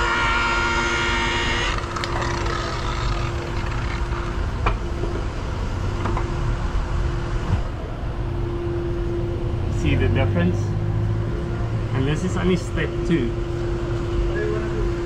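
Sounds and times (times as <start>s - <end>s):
polishing machine whining: 0.0s - 4.5s
steady hum and low rumble: 0.0s - 15.0s.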